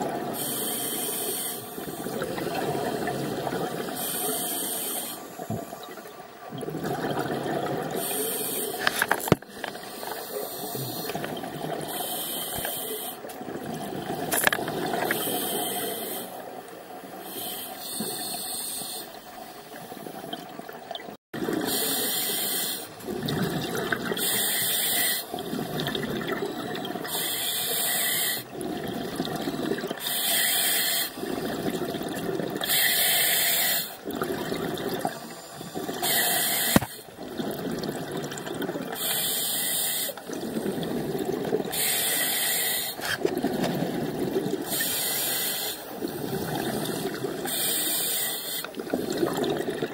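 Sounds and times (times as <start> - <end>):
exhaled bubbles underwater: 0.0 - 27.4, 28.0 - 30.2, 31.0 - 49.9
scuba regulator breathing: 0.4 - 2.0, 3.9 - 5.4, 8.0 - 13.3, 15.0 - 16.4, 17.1 - 19.6, 21.7 - 23.0, 24.2 - 25.3, 27.1 - 28.5, 30.0 - 31.6, 32.6 - 34.0, 35.1 - 37.2, 39.0 - 40.8, 41.7 - 43.3, 44.6 - 49.3.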